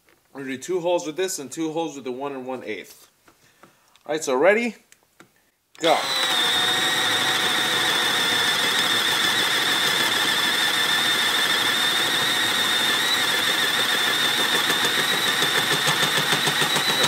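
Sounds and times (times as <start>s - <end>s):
cordless drill motor whine: 5.8s - 17.0s.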